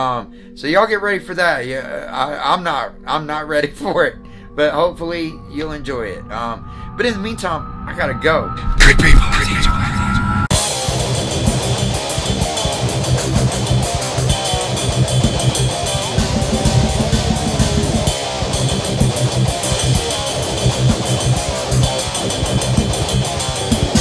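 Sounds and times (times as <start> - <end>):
rock music: 8.6 - 24.0.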